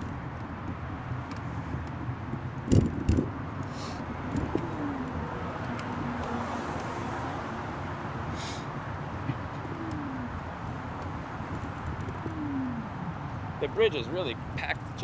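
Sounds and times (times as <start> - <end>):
traffic rumble: 0.0 - 15.0
wind: 0.0 - 15.0
low falling tone: 9.5 - 10.5.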